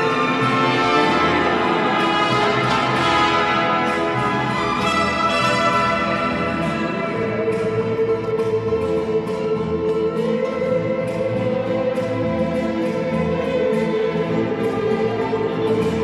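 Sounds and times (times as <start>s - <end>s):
violins bowing held notes: 0.0s - 9.0s
bass: 0.0s - 16.0s
strummed guitar rhythm: 0.0s - 16.0s.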